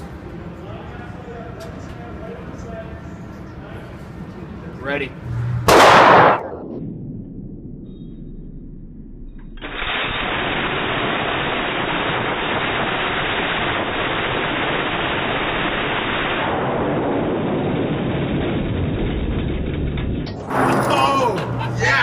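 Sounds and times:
minigun firing slowed down: 5.6s - 20.5s.

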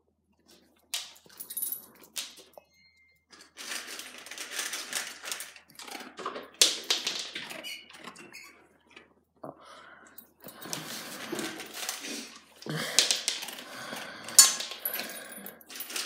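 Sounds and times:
dog crunching dry kibble: 3.6s - 7.6s.

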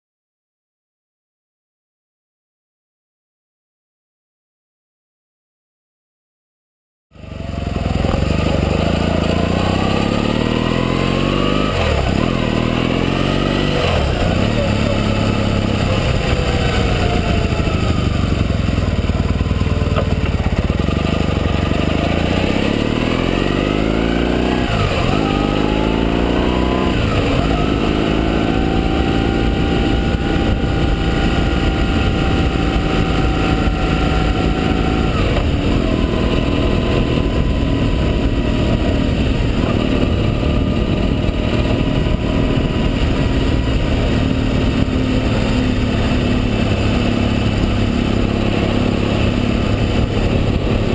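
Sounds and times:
motorcycle engine accelerating: 7.1s - 50.9s
wind rush: 22.0s - 50.9s.

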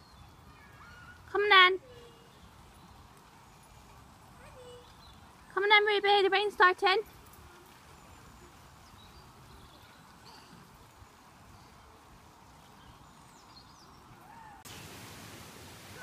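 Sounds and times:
low outdoor hiss: 0.0s - 16.0s.

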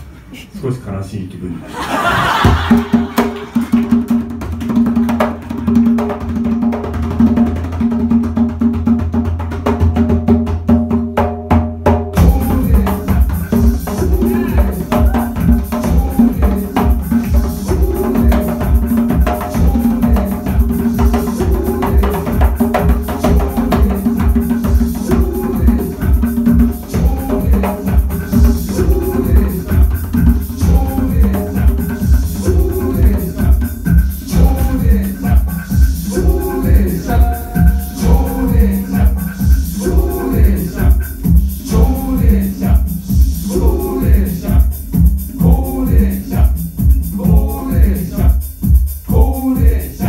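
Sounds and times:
driving drum beat: 2.0s - 50.0s
live band music: 12.1s - 49.3s
bass line: 12.2s - 49.8s.

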